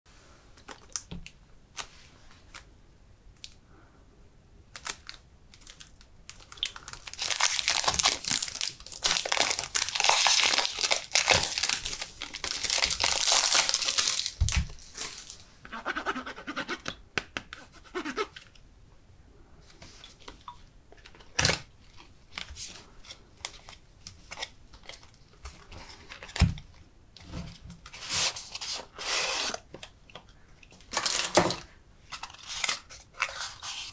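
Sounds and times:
plastic wrap tearing and crinkling: 4.8s - 15.5s, 30.8s - 31.6s.

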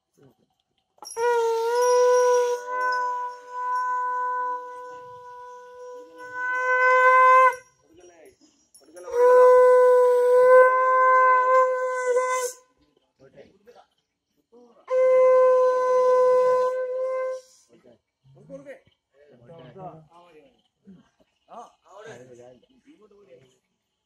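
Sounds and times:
conch shell blasts: 1.0s - 7.7s, 9.0s - 12.6s, 14.9s - 17.5s.

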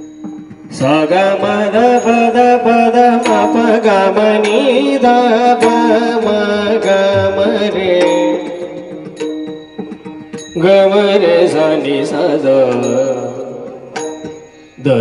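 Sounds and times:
sharp percussion strokes: 0.0s - 15.0s
sustained accompaniment: 0.0s - 15.0s
devotional singing: 0.7s - 9.0s, 10.6s - 14.0s.

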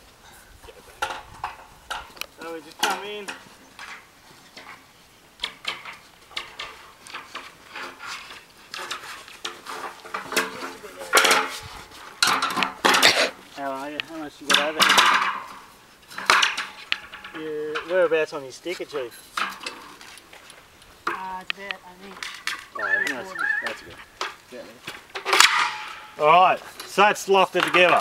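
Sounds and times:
metal rails clanking: 1.0s - 4.8s, 5.4s - 13.3s, 14.4s - 18.2s, 23.8s - 28.0s.

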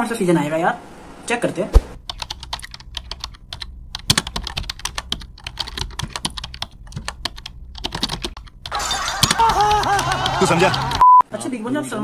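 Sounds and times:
keyboard typing: 2.0s - 11.0s.

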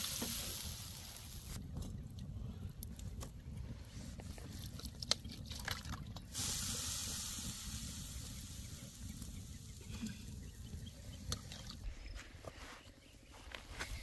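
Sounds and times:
fish sizzling in a pan: 0.0s - 1.6s, 6.3s - 10.4s.

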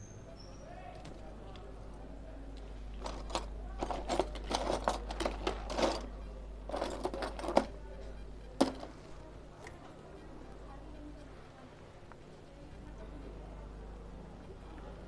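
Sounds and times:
low steady hum: 0.0s - 15.0s
small tools clicking and scratching: 3.0s - 7.8s.

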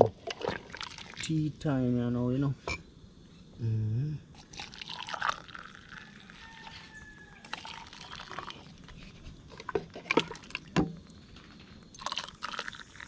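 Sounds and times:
tea pouring into a mug: 0.3s - 1.5s, 4.4s - 13.0s.

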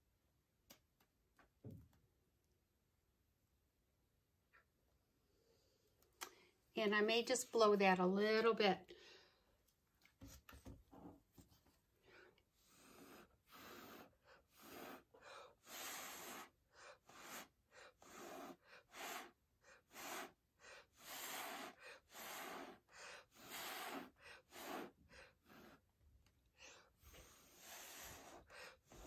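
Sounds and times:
compressed air puffs hissing: 12.6s - 25.8s, 27.0s - 29.0s.

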